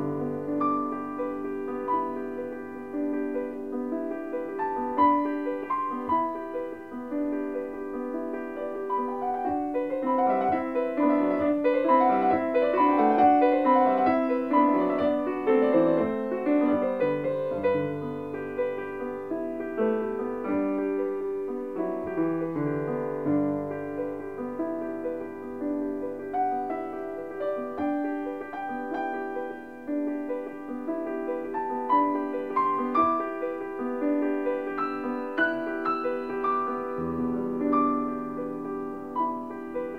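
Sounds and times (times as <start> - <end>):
piano music: 0.0 - 39.9.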